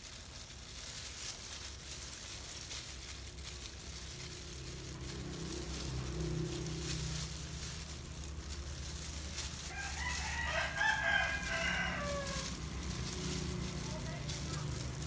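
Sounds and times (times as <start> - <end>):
plastic gloves crinkling: 0.0 - 15.0
rooster crowing: 9.6 - 13.2.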